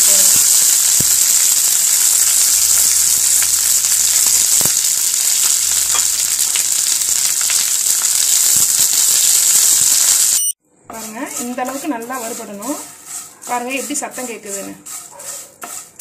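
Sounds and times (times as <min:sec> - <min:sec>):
oil popping and crackling: 0:00.0 - 0:10.4
leaves sizzling in hot oil: 0:00.0 - 0:16.0.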